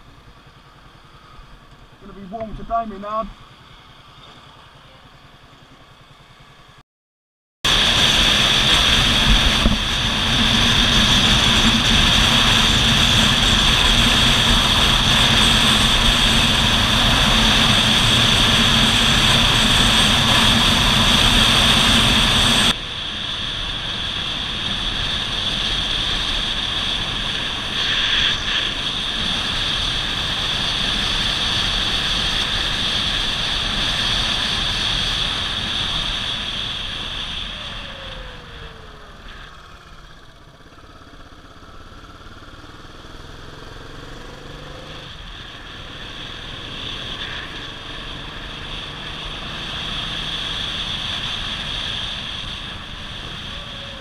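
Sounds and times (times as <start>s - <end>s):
motorcycle engine running: 0.0s - 6.8s, 7.7s - 54.0s
wind rush on microphone: 7.7s - 39.1s.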